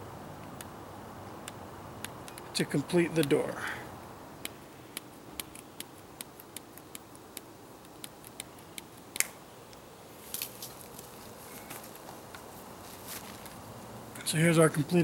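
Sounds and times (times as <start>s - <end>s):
mesh rustling: 10.1s - 13.9s.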